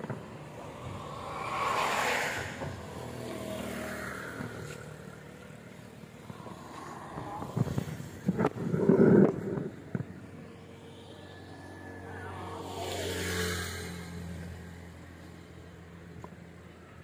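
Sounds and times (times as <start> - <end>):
faint vehicle engine passing: 0.0 - 8.4, 10.2 - 17.0
pickup truck passing: 0.0 - 9.2.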